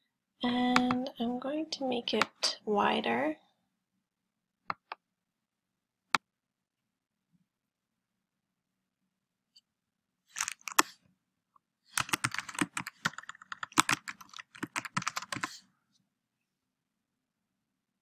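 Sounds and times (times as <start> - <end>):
keyboard typing: 10.3 - 11.0, 11.9 - 15.6.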